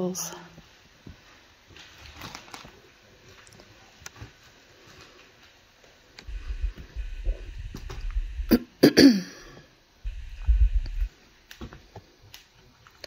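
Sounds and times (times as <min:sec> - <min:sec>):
person clearing throat: 0:08.5 - 0:09.6.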